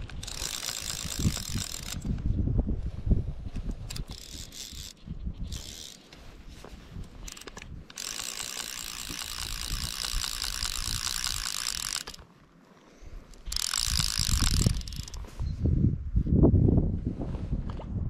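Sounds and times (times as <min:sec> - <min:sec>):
fishing reel drag ratcheting: 0:00.0 - 0:02.2, 0:03.7 - 0:06.3, 0:07.1 - 0:12.3, 0:13.2 - 0:15.3.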